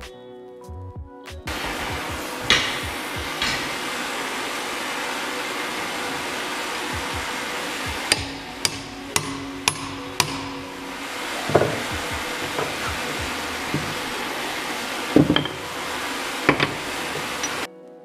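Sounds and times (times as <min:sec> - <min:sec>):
background music: 0:00.0 - 0:18.0
steady hiss: 0:01.5 - 0:17.7
hammer striking rivet: 0:08.1 - 0:10.7, 0:11.5 - 0:13.1, 0:15.2 - 0:15.7, 0:16.5 - 0:17.7.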